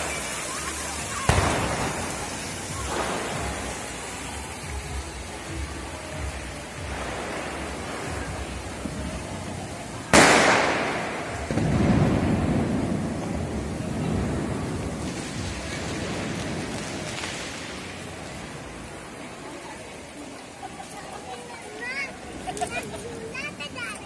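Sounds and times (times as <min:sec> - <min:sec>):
low rumbling noise: 0:00.0 - 0:20.1
steady background din: 0:00.0 - 0:24.0
firecracker bang with echo: 0:01.0 - 0:05.0, 0:06.8 - 0:09.2, 0:10.1 - 0:17.7.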